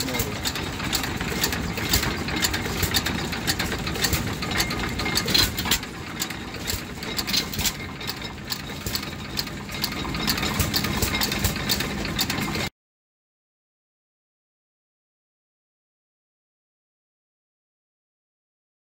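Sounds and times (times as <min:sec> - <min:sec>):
sharp clicks and knocks: 0:00.0 - 0:12.7
stationary engine chugging: 0:00.0 - 0:12.7.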